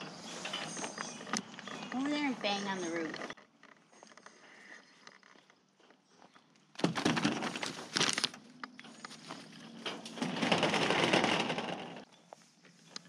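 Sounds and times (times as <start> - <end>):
plastic sheeting crinkling: 7.0 - 8.4, 10.1 - 12.0.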